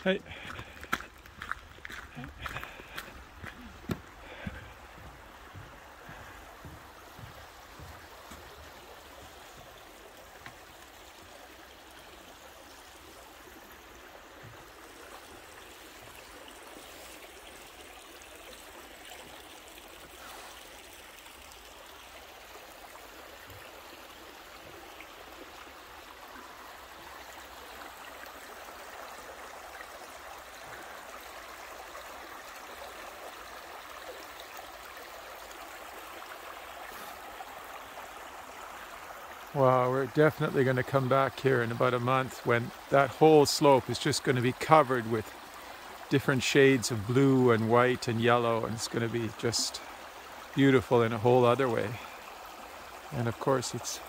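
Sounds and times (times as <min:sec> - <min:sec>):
footsteps: 0:00.0 - 0:09.8
stream babbling: 0:00.0 - 0:54.0.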